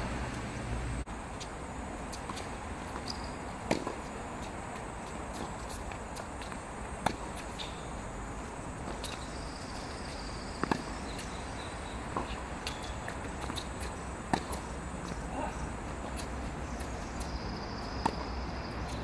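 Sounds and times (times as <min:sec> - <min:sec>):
steady outdoor hiss: 0:00.0 - 0:19.0
tennis ball knocks: 0:03.0 - 0:04.0, 0:13.4 - 0:14.7.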